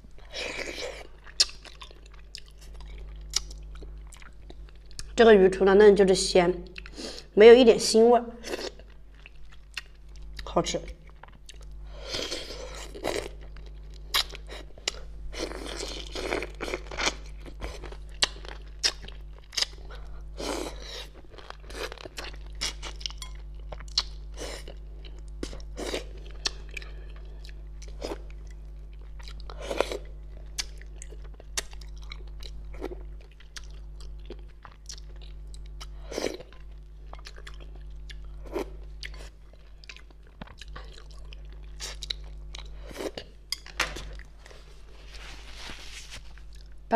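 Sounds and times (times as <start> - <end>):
low electrical hum: 0.0 - 46.9
chewing with wet mouth smacks: 0.6 - 5.1, 8.5 - 11.7, 21.3 - 44.3.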